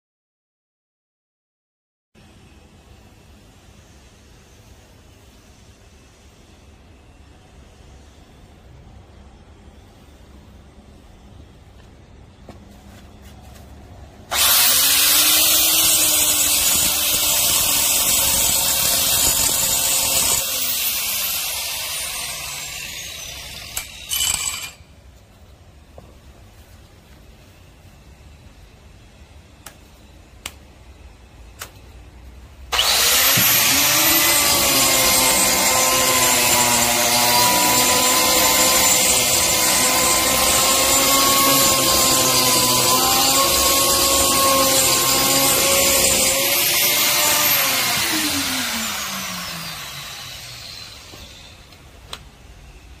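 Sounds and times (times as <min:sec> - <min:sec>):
angle grinder winding down: 0:14.3 - 0:24.8, 0:32.7 - 0:51.6
angle grinder grinding cement block: 0:14.3 - 0:24.9, 0:32.7 - 0:51.7.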